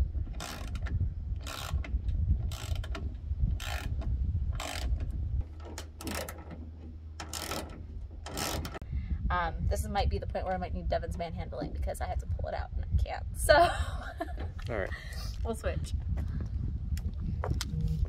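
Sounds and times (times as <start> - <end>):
low rumble: 0.0 - 18.0
ratchet wrench clicking: 0.4 - 1.8, 2.5 - 3.0, 3.6 - 4.0, 4.6 - 5.0.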